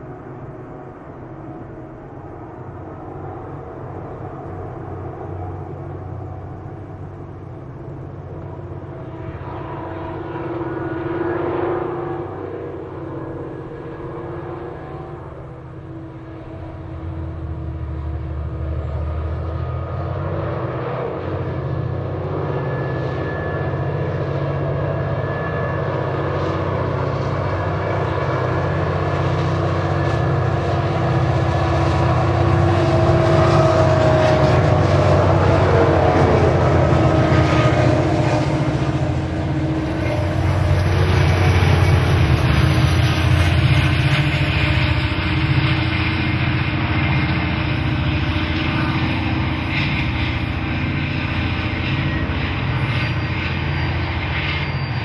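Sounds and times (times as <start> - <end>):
diesel locomotive engine drone: 0.0 - 55.0
thin whining tone: 24.8 - 55.0.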